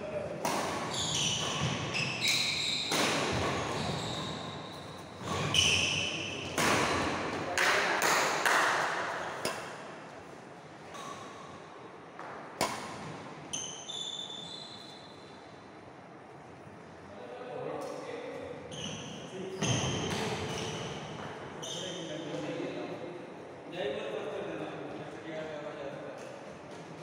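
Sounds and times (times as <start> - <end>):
racket hitting shuttlecock: 0.4 - 1.9, 2.9 - 4.4, 5.2 - 10.0, 12.2 - 13.3
shoes squeaking on wooden floor: 0.9 - 6.6.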